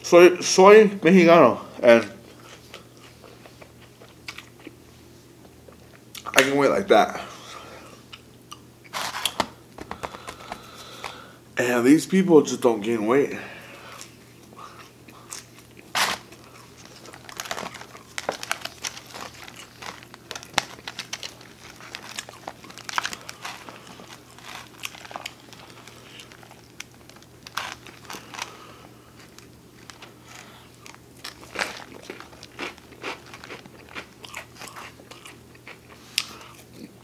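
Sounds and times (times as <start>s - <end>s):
chewing pizza: 2.2s - 6.4s, 13.7s - 37.0s.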